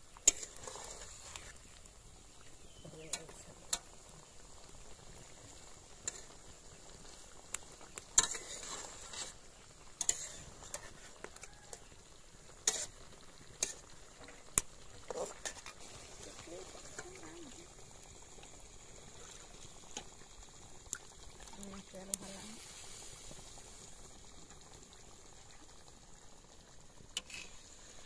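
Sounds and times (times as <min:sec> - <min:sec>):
frying sizzle: 0:00.0 - 0:28.0
spatula scraping metal pan: 0:00.2 - 0:01.6, 0:08.2 - 0:11.1, 0:12.6 - 0:13.0, 0:27.2 - 0:27.6.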